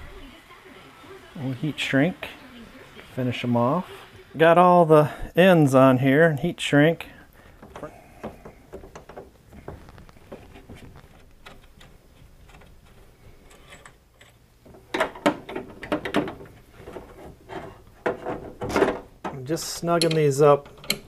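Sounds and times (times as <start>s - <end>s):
metal hardware clinking: 13.5s - 21.0s.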